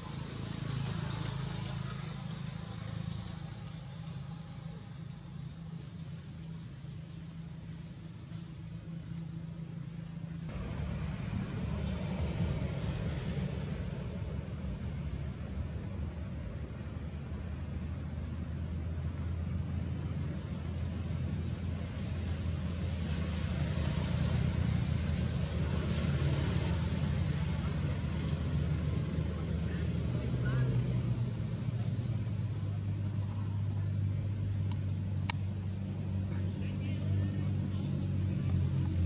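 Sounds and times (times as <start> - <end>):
low engine drone: 0.0 - 39.0.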